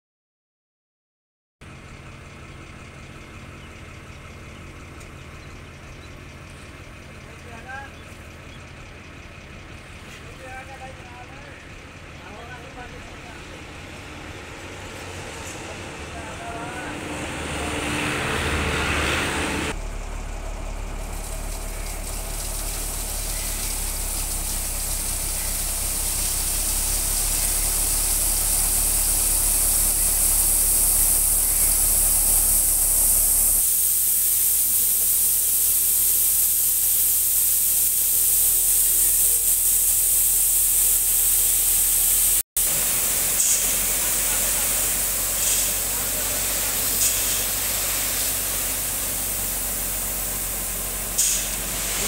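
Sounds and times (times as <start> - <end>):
truck engine running: 1.6 - 52.0
gravel pouring from truck: 19.0 - 52.0.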